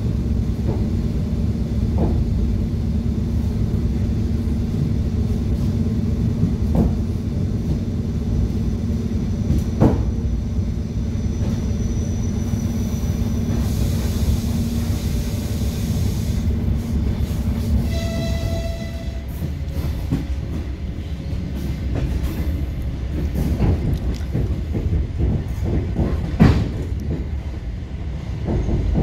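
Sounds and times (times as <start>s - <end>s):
train wheels rumbling on rail: 0.0s - 29.0s.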